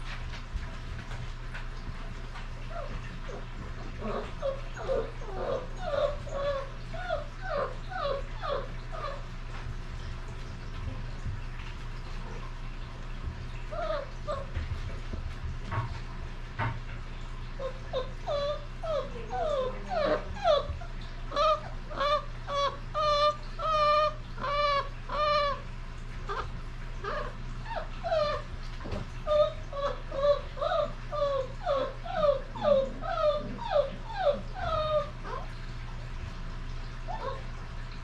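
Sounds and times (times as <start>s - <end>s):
puppies whimpering: 2.6s - 9.3s, 13.6s - 14.5s, 17.6s - 25.6s, 26.3s - 35.6s, 37.1s - 37.5s.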